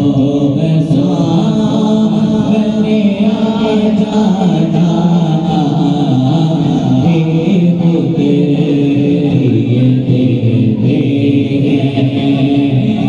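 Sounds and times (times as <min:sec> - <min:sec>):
vocal drone: 0:00.0 - 0:13.0
voices singing devotional chant: 0:00.0 - 0:13.0.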